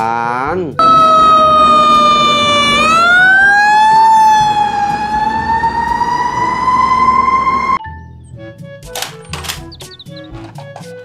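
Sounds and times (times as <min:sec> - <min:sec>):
fire truck siren wailing: 0:00.8 - 0:07.8.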